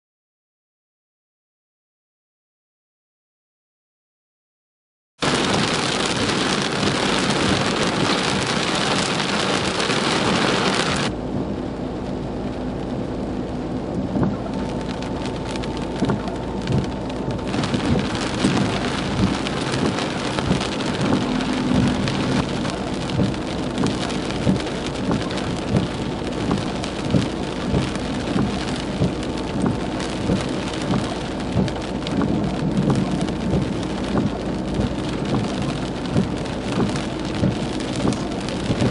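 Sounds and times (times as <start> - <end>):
windshield wipers beating: 5.2 - 11.1, 14.0 - 38.9
heavy rain on car windshield: 5.2 - 38.9.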